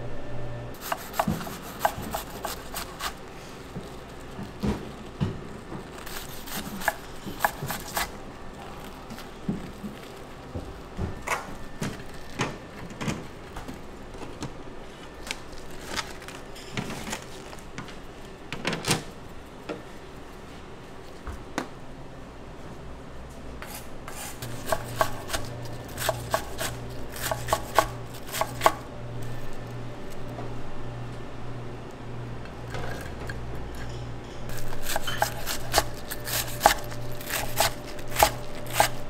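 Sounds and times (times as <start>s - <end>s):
low steady hum: 0.0s - 18.6s, 19.2s - 39.0s
knife chopping on cutting board: 0.8s - 3.2s, 6.0s - 8.1s, 23.6s - 28.8s, 34.5s - 39.0s.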